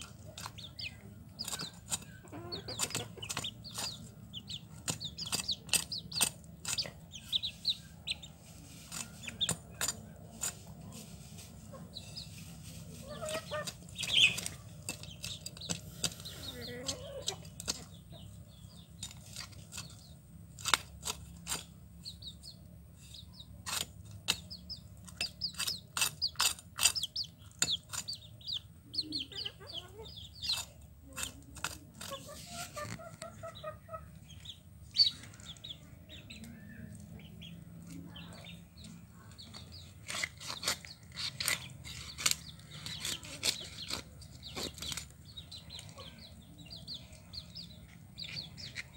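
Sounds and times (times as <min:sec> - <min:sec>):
hens clucking: 0:00.0 - 0:20.2, 0:22.5 - 0:48.9
fish scraping against a blade: 0:08.6 - 0:10.8, 0:25.1 - 0:28.3, 0:39.8 - 0:45.1.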